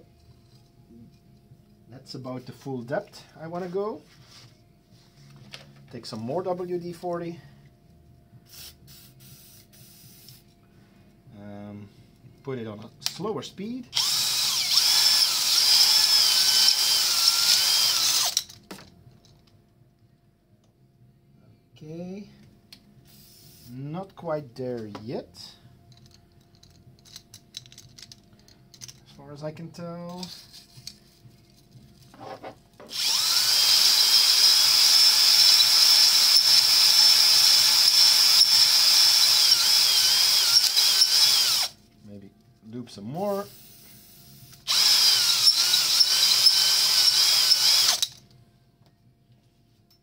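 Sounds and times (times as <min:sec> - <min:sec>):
drill spinning grinding hone: 0:14.0 - 0:18.5, 0:32.9 - 0:41.8, 0:44.7 - 0:48.2.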